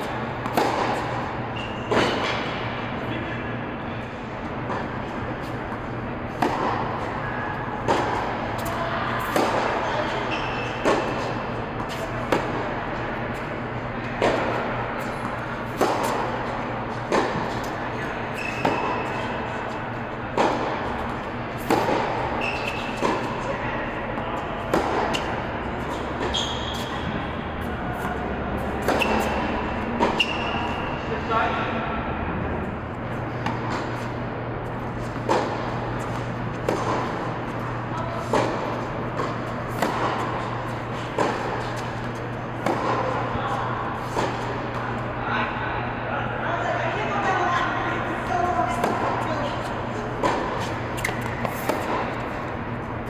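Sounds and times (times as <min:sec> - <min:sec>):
tennis rackets hitting ball: 0:00.0 - 0:02.8, 0:04.6 - 0:31.8, 0:33.0 - 0:45.3, 0:48.1 - 0:53.0
steady low hum: 0:00.0 - 0:53.0
shoe squeaks: 0:01.5 - 0:02.3, 0:10.1 - 0:11.2, 0:18.2 - 0:19.4, 0:22.3 - 0:23.1, 0:25.9 - 0:27.2, 0:28.9 - 0:31.1, 0:50.6 - 0:51.7.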